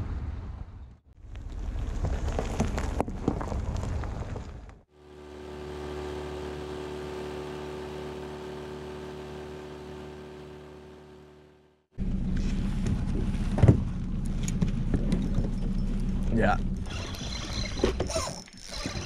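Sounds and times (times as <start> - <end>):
tyres crunching on gravel: 1.2 - 4.8
outboard motor running: 4.9 - 19.0.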